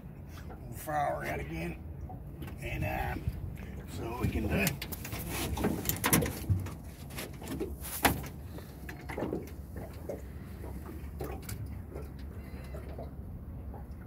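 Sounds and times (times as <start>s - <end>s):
steady low rumble: 0.0s - 14.0s
knocks and rattles in metal boat: 2.3s - 13.1s.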